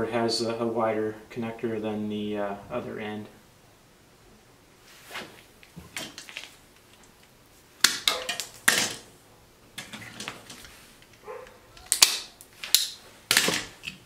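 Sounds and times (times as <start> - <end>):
wire and crimper clicking and scraping: 5.6 - 9.1, 9.8 - 14.0.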